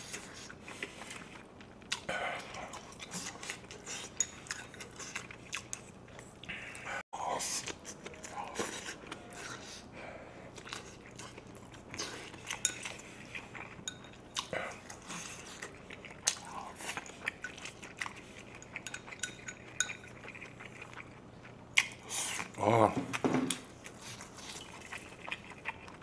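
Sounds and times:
wet chewing and biting: 0.0s - 7.0s, 10.5s - 26.0s.

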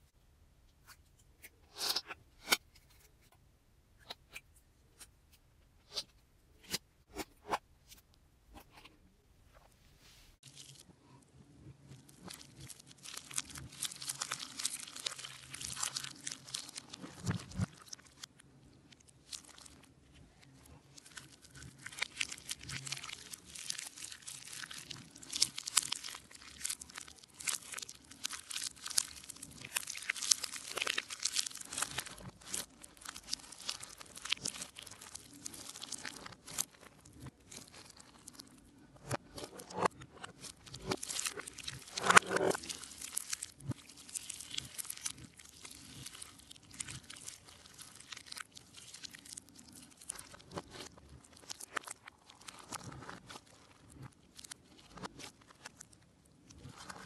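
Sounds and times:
slime squished by hand: 11.9s - 18.4s, 19.0s - 38.4s, 39.1s - 55.9s.

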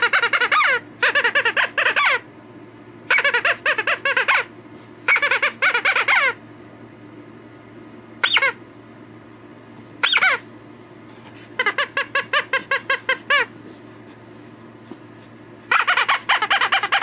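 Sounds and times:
squeaky toy squeaking: 0.0s - 2.2s, 3.1s - 4.5s, 5.1s - 6.4s, 8.2s - 8.6s, 10.0s - 10.4s, 11.6s - 13.5s, 15.7s - 17.0s.

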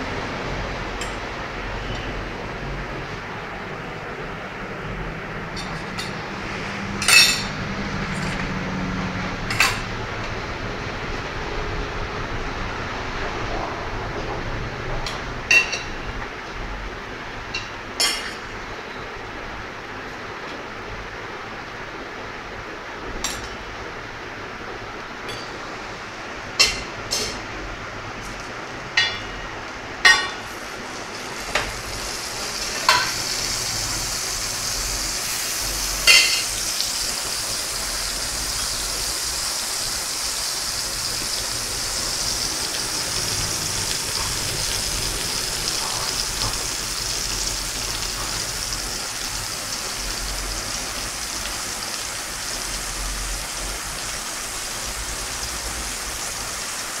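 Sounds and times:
metal utensils clinking: 7.0s - 7.6s
butter sizzling on hot iron: 30.1s - 57.0s.

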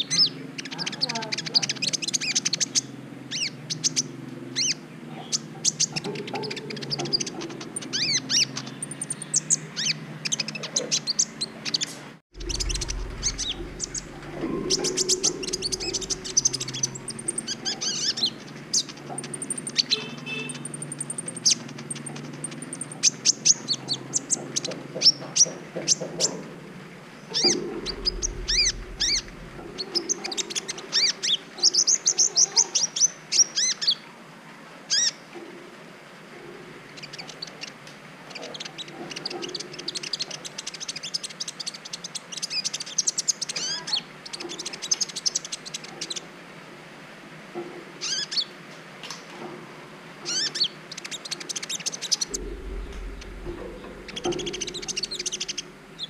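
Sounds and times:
bird chirping and trilling: 0.0s - 26.5s, 27.1s - 34.0s, 50.3s - 56.0s.

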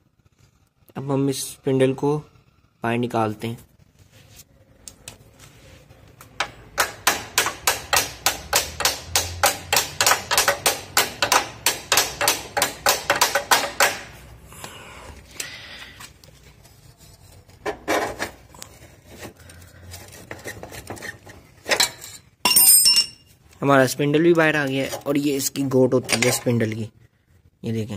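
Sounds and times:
hammer tapping on metal: 6.4s - 14.2s.

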